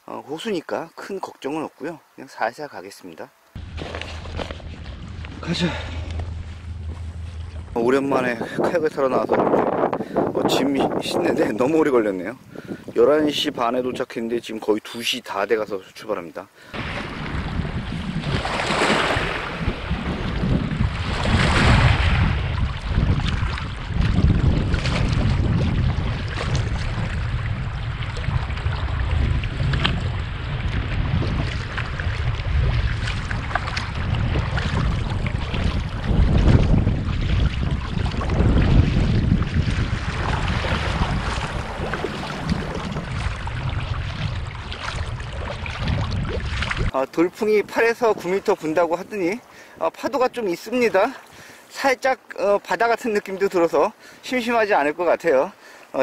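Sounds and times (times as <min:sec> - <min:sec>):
kayak paddle splashing water: 0:03.6 - 0:08.7, 0:16.7 - 0:47.0
wind buffeting microphone: 0:03.6 - 0:14.2, 0:16.8 - 0:51.5.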